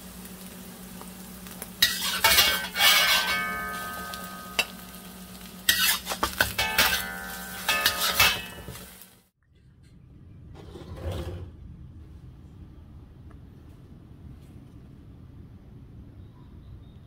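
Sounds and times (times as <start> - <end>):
light sizzle: 0.0 - 9.4
metal spatula clanking on wok: 1.8 - 5.0, 5.7 - 8.9.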